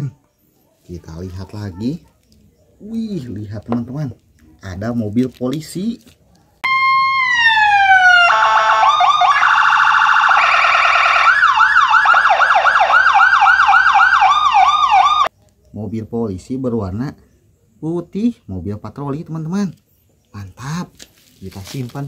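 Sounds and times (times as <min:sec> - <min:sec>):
toy electronic police siren: 0:06.6 - 0:15.3.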